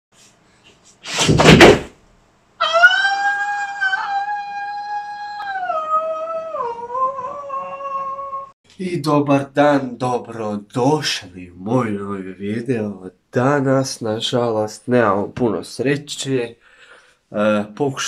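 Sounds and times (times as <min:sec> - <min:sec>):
loud crash: 0:01.1 - 0:02.0
man howling high-pitched cry: 0:02.6 - 0:08.5.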